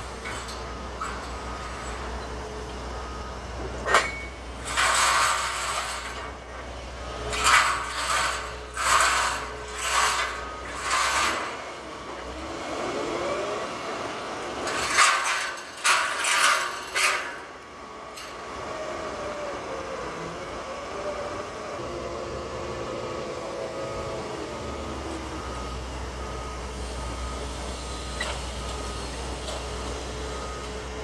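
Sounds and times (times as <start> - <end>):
metal scraping and rattling: 0.0 - 2.2, 3.8 - 12.2, 14.6 - 17.6
excavator engine rumbling: 0.0 - 31.0.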